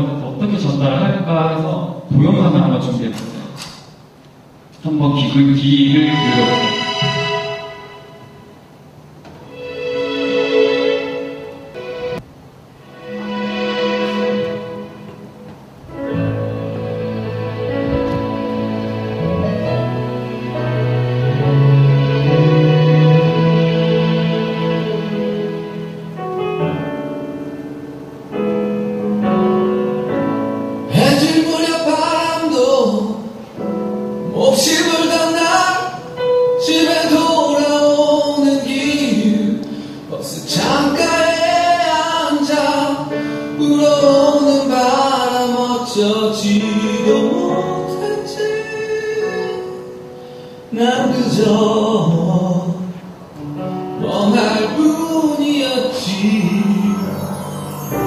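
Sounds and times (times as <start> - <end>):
instrumental backing: 3.1 - 58.0
person singing: 34.2 - 49.9, 54.0 - 58.0.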